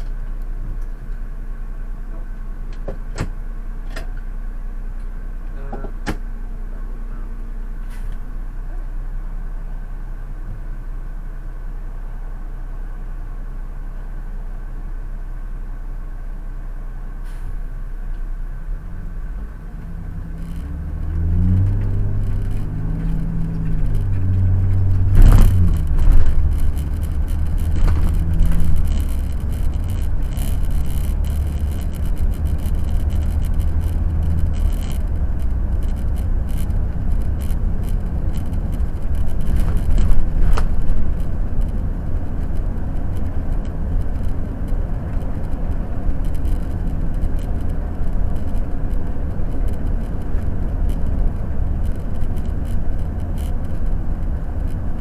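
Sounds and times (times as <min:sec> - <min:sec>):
diesel engine idling and accelerating: 0:00.0 - 0:55.0
road noise: 0:00.0 - 0:55.0
loud thumps: 0:21.7 - 0:41.4.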